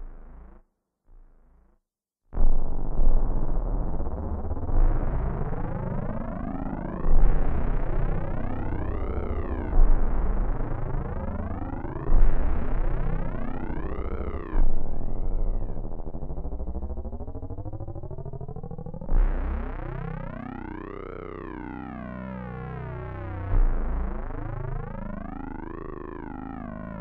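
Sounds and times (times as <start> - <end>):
deep synthesizer note: 2.4 - 27.0
synthesizer pitch sweep: 3.0 - 16.7, 18.9 - 27.0.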